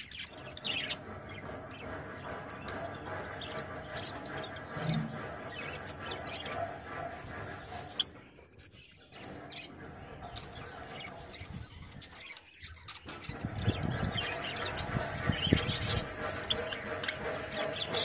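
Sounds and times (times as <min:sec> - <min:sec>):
budgerigars chirping: 0:00.0 - 0:18.0.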